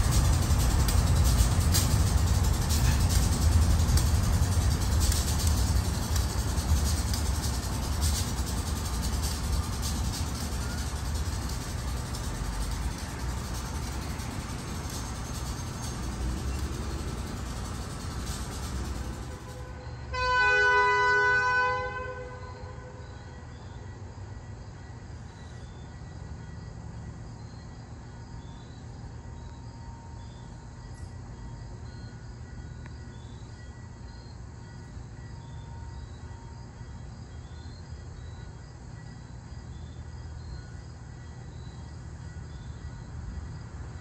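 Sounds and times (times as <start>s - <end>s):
train rumbling: 0.0s - 44.0s
locomotive air horn blast: 19.1s - 23.2s.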